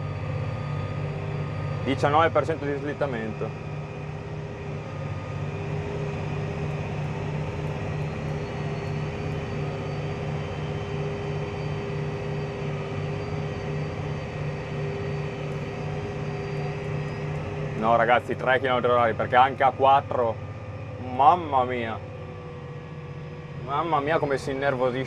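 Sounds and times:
diesel engine running hard: 0:00.0 - 0:25.0
steady whine: 0:00.0 - 0:25.0.

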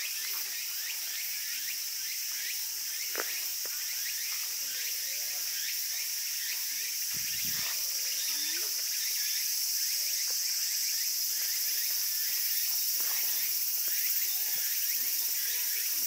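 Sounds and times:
cicadas shrilling: 0:00.0 - 0:16.0.

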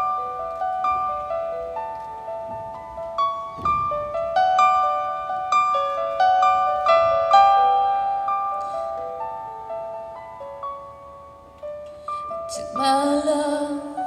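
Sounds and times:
piano melody: 0:00.0 - 0:14.0.

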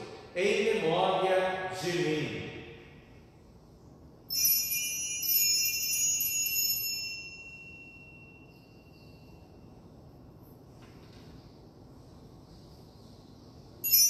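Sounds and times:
small bells ringing: 0:04.3 - 0:09.8.

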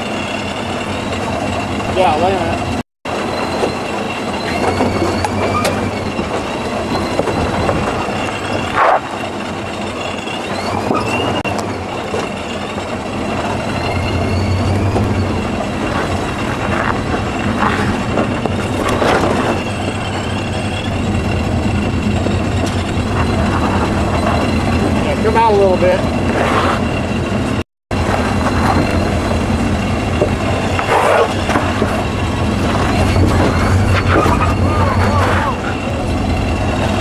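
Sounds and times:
vehicle engine running low: 0:00.0 - 0:37.0
high thin squeal: 0:30.5 - 0:37.0.

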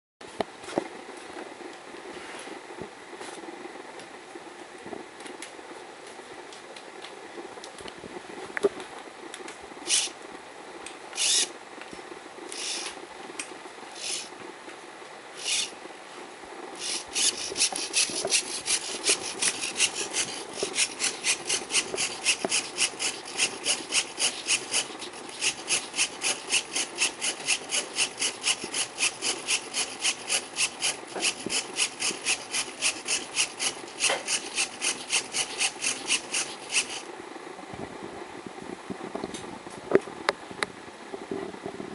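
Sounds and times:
pen scratching on card: 0:16.8 - 0:37.0.

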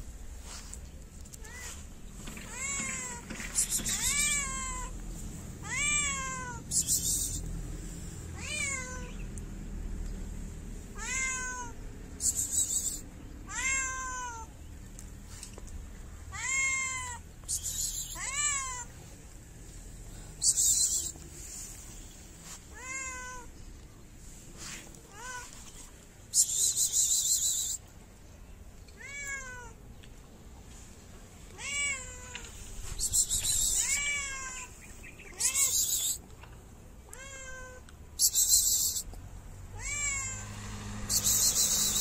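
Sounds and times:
cat meowing: 0:02.4 - 0:05.0, 0:05.6 - 0:06.6, 0:08.4 - 0:09.2, 0:11.0 - 0:11.8, 0:13.5 - 0:14.5, 0:16.3 - 0:17.2, 0:17.8 - 0:18.9, 0:22.7 - 0:23.5, 0:29.0 - 0:29.8, 0:31.5 - 0:32.5, 0:33.5 - 0:36.0, 0:37.1 - 0:37.8, 0:39.8 - 0:40.6.

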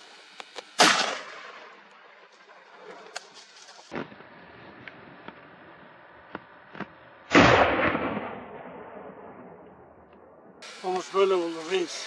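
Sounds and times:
rifle shot echoing: 0:00.8 - 0:01.9, 0:06.7 - 0:10.6.

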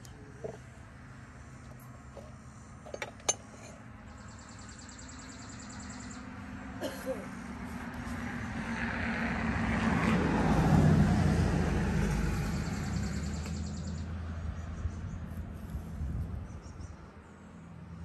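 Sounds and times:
vehicle driving past: 0:07.5 - 0:16.1.

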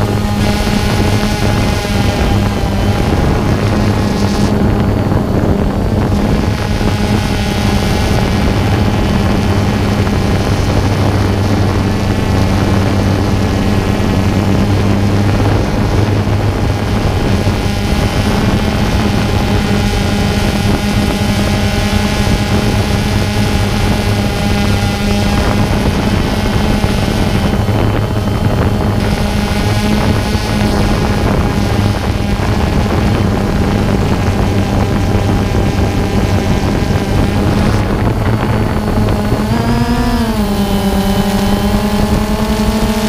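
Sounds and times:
drone propellers buzzing: 0:00.0 - 0:43.0
wind noise on microphone: 0:00.0 - 0:43.0.

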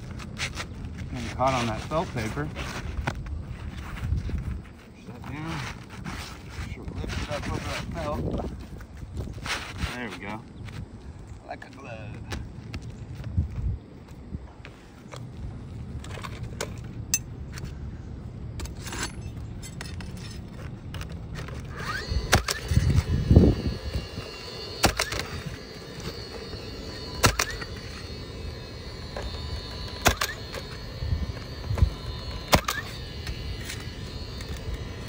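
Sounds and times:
roofing nailer firing: 0:21.7 - 0:35.0.

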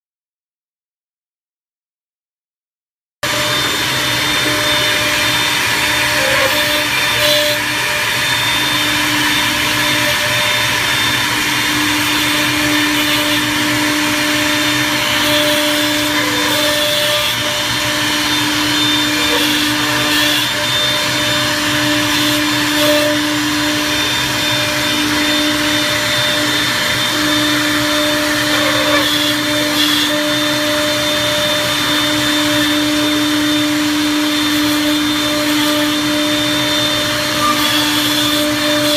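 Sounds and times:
electric spindles whining: 0:03.3 - 0:38.9.

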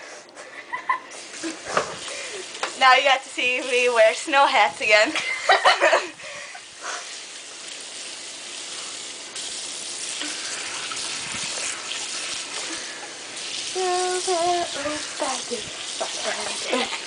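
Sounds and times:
faucet water running into sink: 0:01.2 - 0:04.9, 0:06.5 - 0:17.0
bowl being rinsed: 0:01.2 - 0:17.0.

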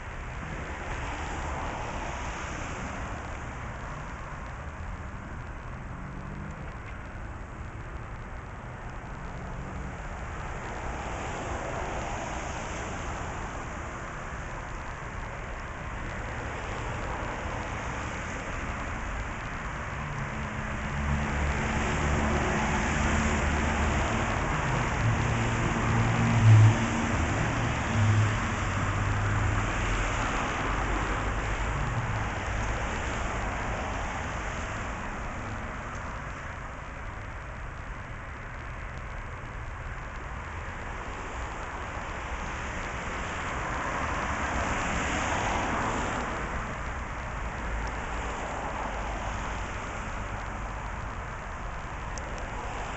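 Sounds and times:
outdoor background noise: 0:00.0 - 0:52.9
vehicle engine: 0:03.4 - 0:13.4, 0:15.7 - 0:42.0.

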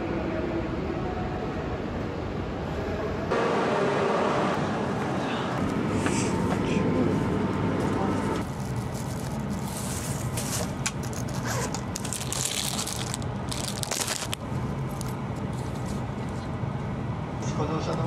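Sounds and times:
train interior hum: 0:00.0 - 0:18.0
plastic bags crinkling: 0:08.4 - 0:14.4.

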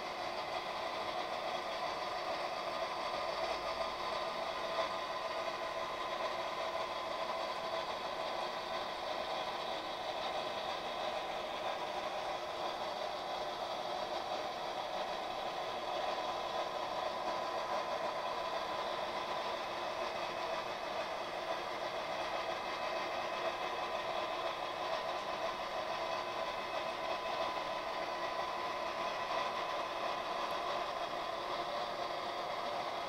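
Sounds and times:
model train mechanical hum: 0:00.0 - 0:33.0.

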